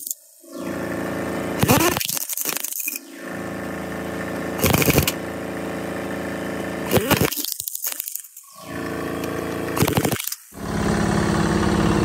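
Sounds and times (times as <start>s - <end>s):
engine running: 0.5s - 2.0s, 3.0s - 7.3s, 8.5s - 12.0s.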